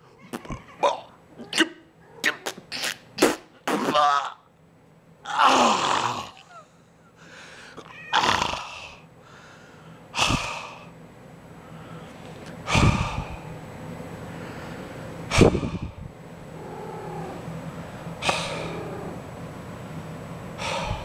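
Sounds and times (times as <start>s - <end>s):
person exhaling heavily: 20.6s - 21.0s.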